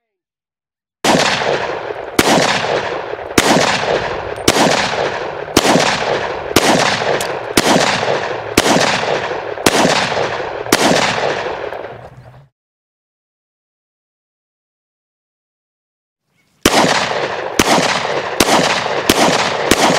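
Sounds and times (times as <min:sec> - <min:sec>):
pistol shots echoing: 0:01.0 - 0:12.0, 0:16.6 - 0:19.9.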